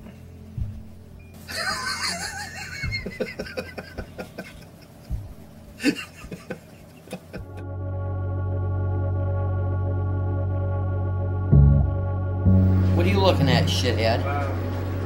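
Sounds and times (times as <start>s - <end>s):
low hum: 0.0s - 15.0s
person laughing: 1.5s - 5.2s, 5.8s - 7.6s.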